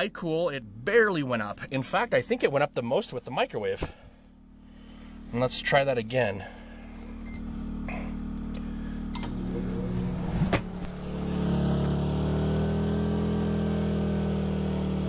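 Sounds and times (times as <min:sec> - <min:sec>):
generator engine running: 0:03.9 - 0:15.0
microwave humming: 0:07.0 - 0:12.9
microwave keypad beeps: 0:07.2 - 0:07.4.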